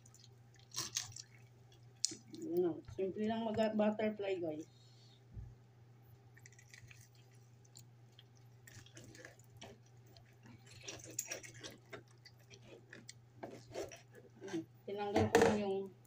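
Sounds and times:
wet squishing of raw chicken: 0:00.0 - 0:02.7
low steady hum: 0:00.0 - 0:16.0.

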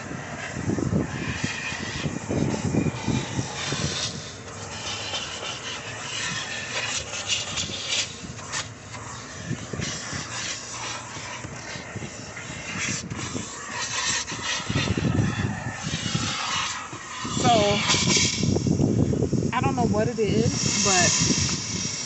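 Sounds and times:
nozzle scraping upholstery: 0:00.0 - 0:18.8, 0:19.6 - 0:22.0
vacuum hose sucking: 0:00.0 - 0:22.0.

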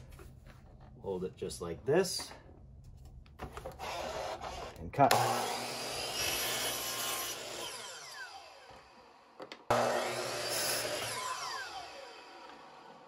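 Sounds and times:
miter saw cutting wood: 0:03.8 - 0:13.0.

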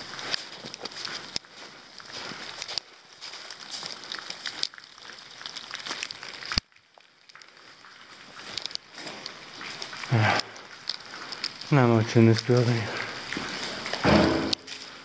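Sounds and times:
clicks and crackles: 0:00.0 - 0:15.0
rain falling: 0:00.0 - 0:15.0.

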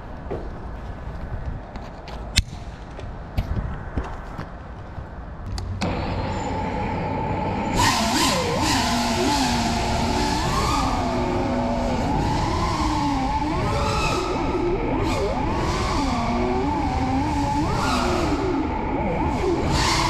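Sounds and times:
drone motors whining: 0:05.6 - 0:20.0
propeller wash rushing: 0:05.8 - 0:20.0.

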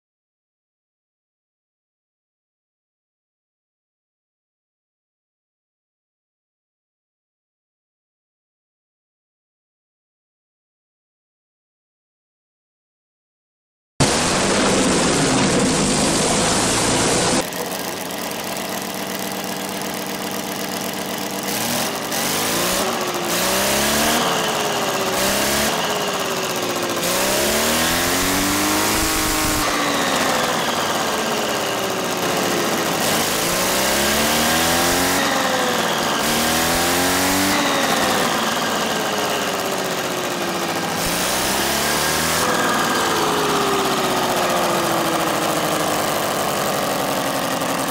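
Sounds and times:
aero engine running: 0:14.0 - 0:47.9
model engine revving: 0:14.0 - 0:47.9.

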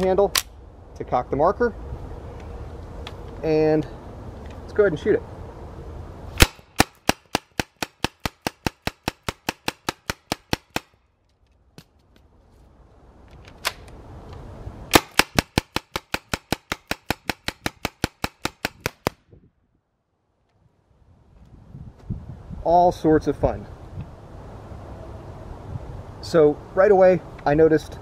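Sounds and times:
paintball marker firing: 0:06.4 - 0:11.0, 0:14.9 - 0:19.2.

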